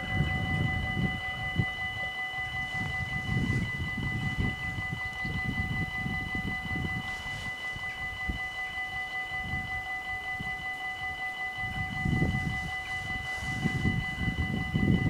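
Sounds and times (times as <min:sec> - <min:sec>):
low rumble: 0:00.0 - 0:01.9
level crossing bells ringing: 0:00.0 - 0:14.4.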